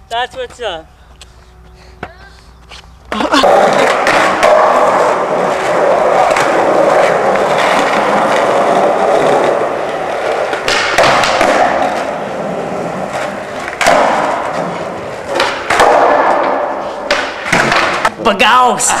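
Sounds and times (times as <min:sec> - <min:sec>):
skateboard wheels rolling on concrete: 0:00.0 - 0:18.2
skateboard sharp clacks: 0:03.4 - 0:12.2, 0:13.1 - 0:18.2.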